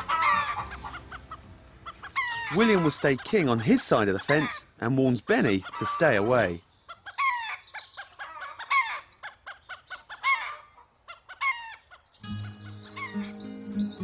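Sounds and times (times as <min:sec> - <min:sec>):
chickens clucking and squawking: 0:00.0 - 0:14.0
background music: 0:12.2 - 0:14.0.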